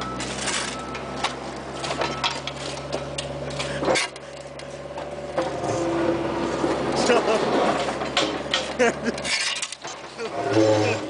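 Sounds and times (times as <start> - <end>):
excavator engine hum: 0.0 - 11.0
shovels scraping gravelly soil: 9.1 - 11.0.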